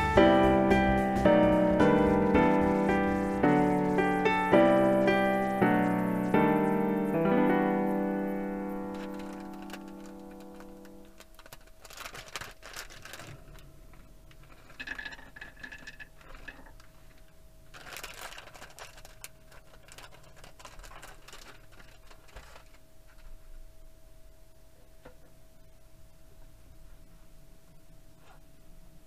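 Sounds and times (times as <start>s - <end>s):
plastic bag crinkling: 1.5s - 6.7s, 8.4s - 23.4s
nuts clattering onto wooden plate: 14.4s - 16.8s.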